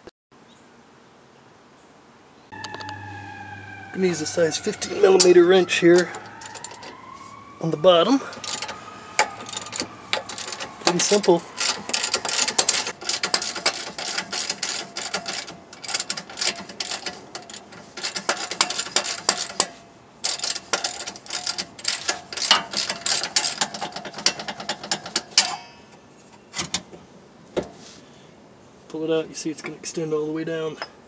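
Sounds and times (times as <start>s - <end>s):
ratchet clicking: 6.0s - 6.9s, 8.4s - 25.6s.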